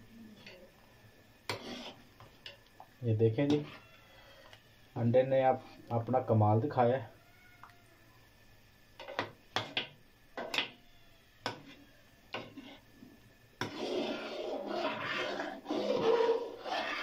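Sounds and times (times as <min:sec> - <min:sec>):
ladle stirring and scraping soup: 0:01.5 - 0:02.6, 0:03.4 - 0:03.8, 0:12.4 - 0:12.9, 0:13.6 - 0:17.0.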